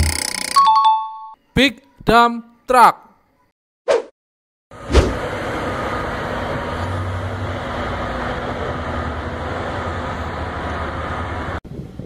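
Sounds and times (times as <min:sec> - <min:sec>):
diesel truck engines droning: 0:04.8 - 0:11.6.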